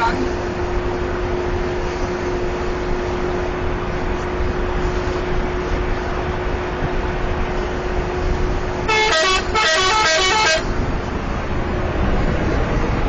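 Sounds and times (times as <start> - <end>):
bus driving drone: 0.0 - 13.0
musical bus horn: 8.8 - 10.8.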